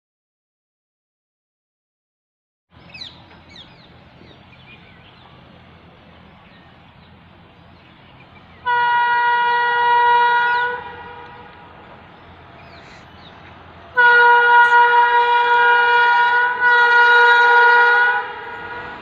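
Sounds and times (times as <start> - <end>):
train horn blast: 8.6 - 12.7, 13.9 - 19.0.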